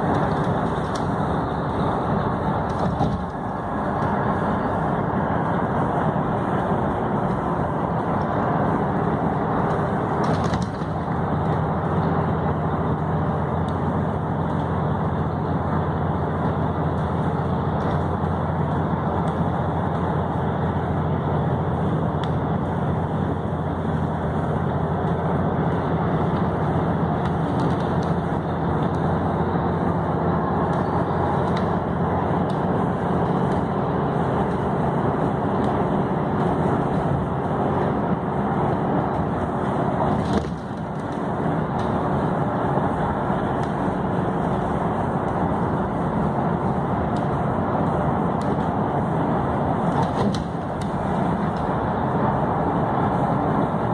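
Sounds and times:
car engine hum: 0.0s - 53.9s.

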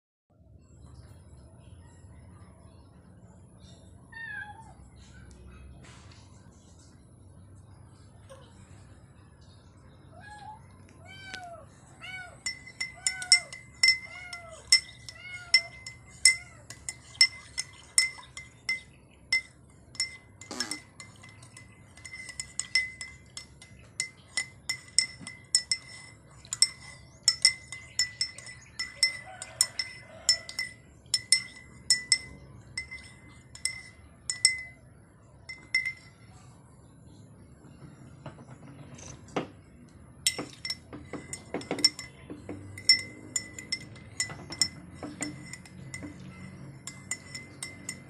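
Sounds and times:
spoon clinking in ceramic mug: 12.2s - 34.9s, 35.5s - 36.3s, 40.3s - 48.0s.

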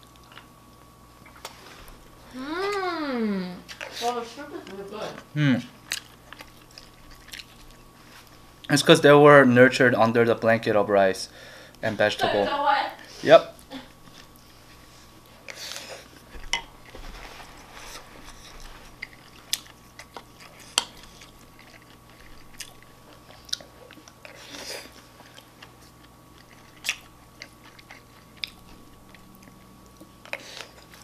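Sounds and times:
chewing food: 0.0s - 2.1s, 3.6s - 8.8s, 13.6s - 31.0s.

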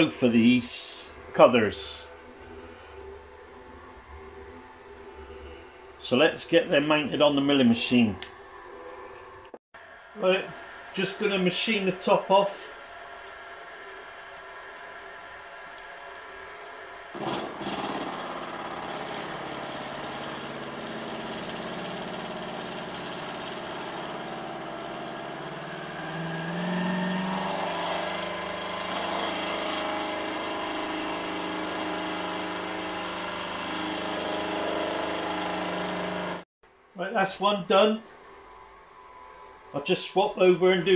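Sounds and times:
milling machine cutting metal: 17.2s - 36.4s.

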